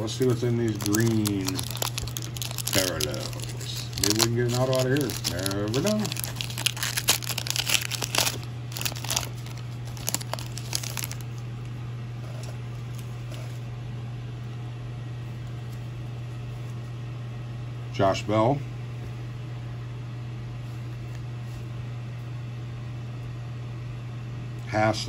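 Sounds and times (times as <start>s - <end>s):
card pack wrapper crinkling: 0.0s - 11.4s
steady low hum: 0.0s - 25.0s.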